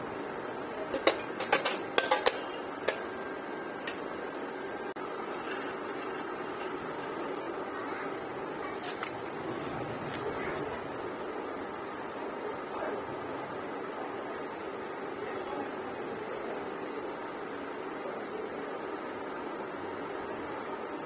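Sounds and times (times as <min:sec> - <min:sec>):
steady background hiss: 0:00.0 - 0:21.0
sheet metal clinking on concrete: 0:00.9 - 0:03.0.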